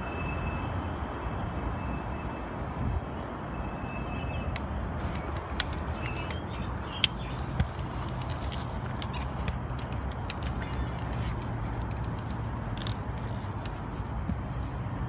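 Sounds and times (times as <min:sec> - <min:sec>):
scooter tyre noise: 0:04.3 - 0:14.9
scooter rattling over bumps: 0:04.9 - 0:14.4.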